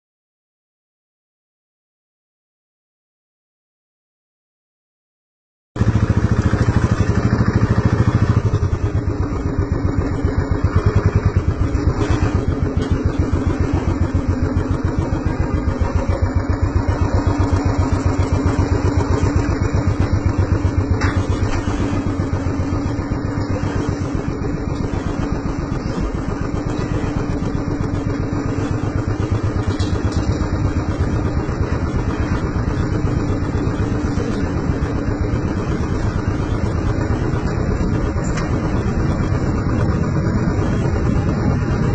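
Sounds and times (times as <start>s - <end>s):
motorcycle engine running: 5.8s - 41.9s.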